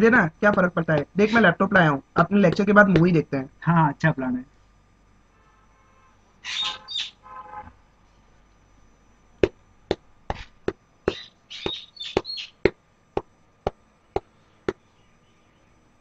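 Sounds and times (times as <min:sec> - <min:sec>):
footsteps on concrete stairs: 0:11.1 - 0:12.3.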